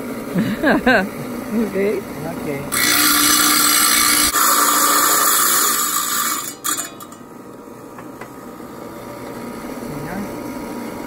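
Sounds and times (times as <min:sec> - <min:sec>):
saw running: 0:00.0 - 0:07.4
tile saw grinding stone: 0:02.7 - 0:07.2.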